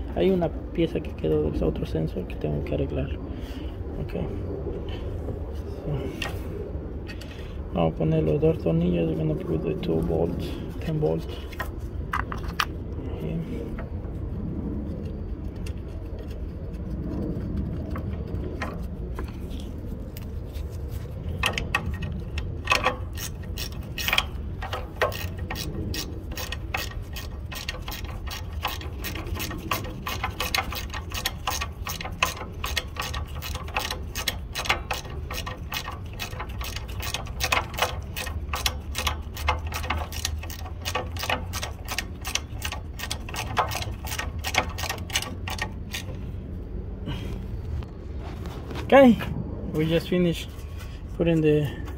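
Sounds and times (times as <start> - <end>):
steady low hum: 0.0 - 51.9
ratchet wrench clicking: 21.3 - 46.3.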